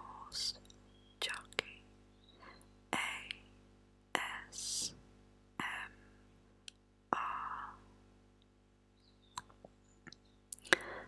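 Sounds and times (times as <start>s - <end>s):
person whispering: 0.0s - 0.6s, 1.2s - 1.8s, 3.0s - 3.4s, 4.2s - 5.0s, 5.6s - 6.0s, 7.2s - 7.8s
faint steady hum: 0.0s - 11.0s.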